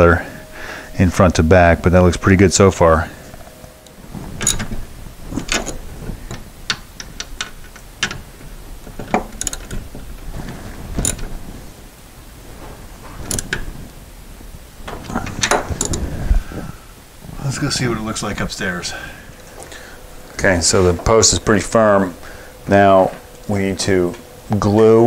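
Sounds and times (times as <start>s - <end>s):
ratchet wrench clicking: 9.1s - 9.8s, 13.3s - 13.6s.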